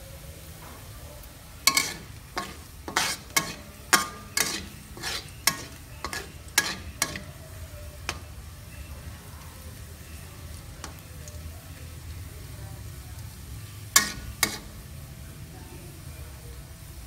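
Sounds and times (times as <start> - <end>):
garlic frying: 0.0 - 17.0
spatula striking metal wok: 1.6 - 8.4, 13.9 - 14.9.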